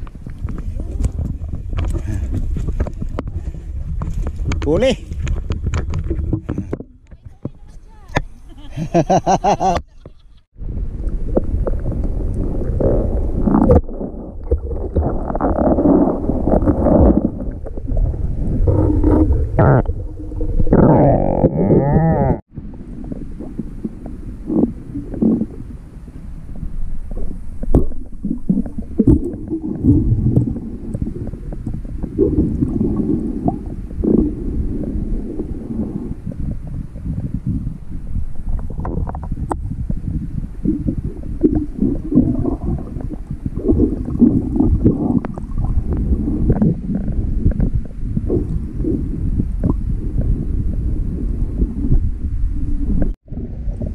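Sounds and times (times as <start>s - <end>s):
muffled underwater sloshing: 22.3s - 53.9s.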